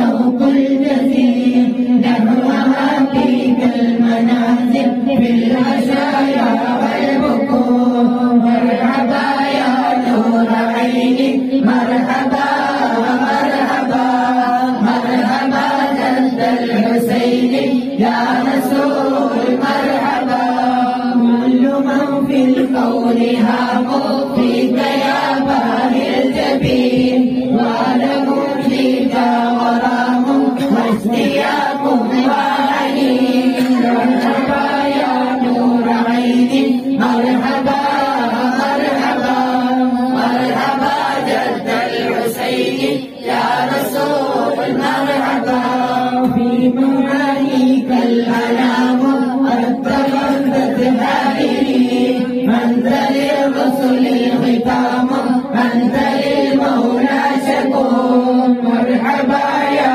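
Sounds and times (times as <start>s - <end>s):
group chanting: 0.0s - 59.9s
voice leading on microphone: 0.0s - 59.9s.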